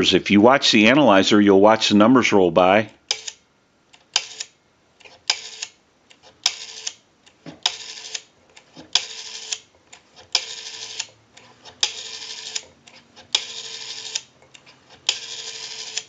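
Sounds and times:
rotary telephone dial clicking: 0:03.1 - 0:03.4, 0:04.0 - 0:07.0, 0:07.6 - 0:16.0.

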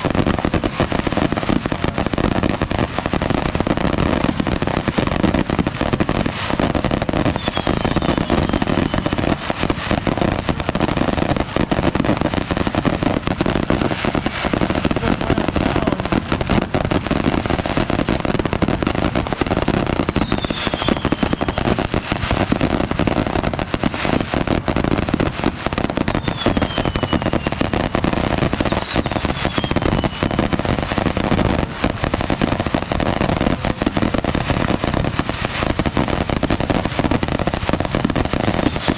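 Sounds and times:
fireworks bangs and crackling: 0:00.0 - 0:38.9
falling firework whistles: 0:06.4 - 0:09.6, 0:13.5 - 0:15.0, 0:19.8 - 0:22.5, 0:26.0 - 0:30.6, 0:38.4 - 0:38.9.

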